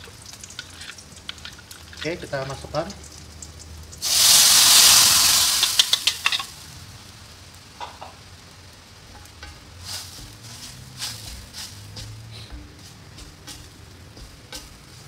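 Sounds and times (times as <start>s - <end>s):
spices sizzling in hot oil: 0.0s - 15.0s
wooden spatula scraping wok: 9.1s - 15.0s.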